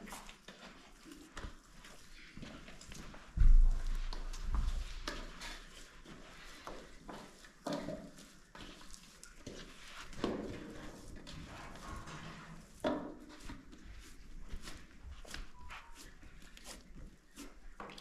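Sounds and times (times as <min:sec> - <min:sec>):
hands kneading dough: 0:00.0 - 0:18.0.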